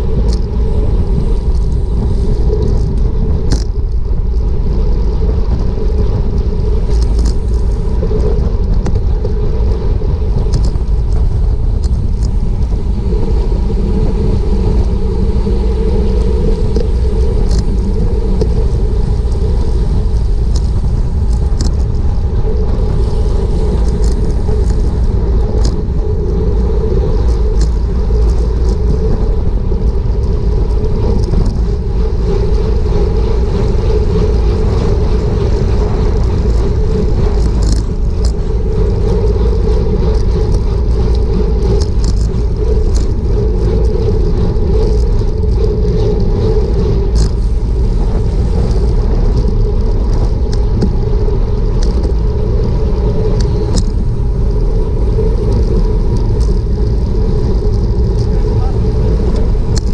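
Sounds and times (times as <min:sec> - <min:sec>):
bike tyres rumbling on asphalt: 0:00.0 - 0:59.9
wind rushing over microphone: 0:00.0 - 0:59.9
light ticks: 0:11.8 - 0:12.7, 0:20.1 - 0:22.0.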